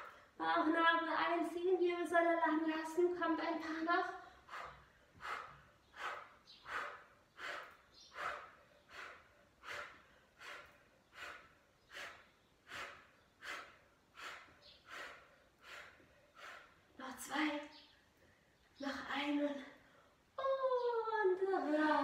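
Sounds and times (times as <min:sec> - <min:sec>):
woman breathing hard: 0:00.0 - 0:00.4, 0:04.2 - 0:17.0.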